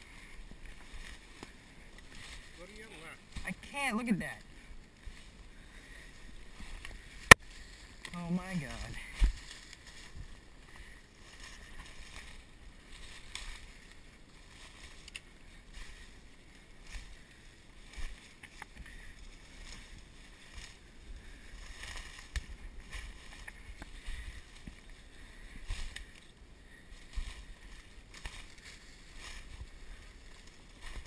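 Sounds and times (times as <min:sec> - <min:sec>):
footsteps crunching through dry leaves: 0:00.0 - 0:03.4, 0:04.5 - 0:31.0
branches scraping: 0:00.0 - 0:31.0.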